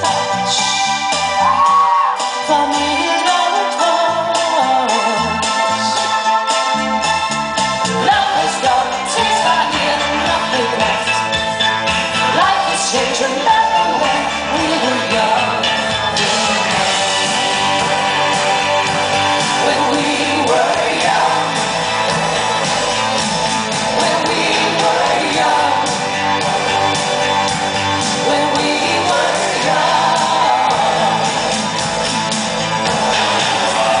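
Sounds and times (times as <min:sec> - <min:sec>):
live band music: 0:00.0 - 0:34.0
woman singing: 0:02.4 - 0:06.0, 0:08.0 - 0:11.2, 0:12.3 - 0:16.8, 0:19.6 - 0:21.6, 0:28.2 - 0:31.4.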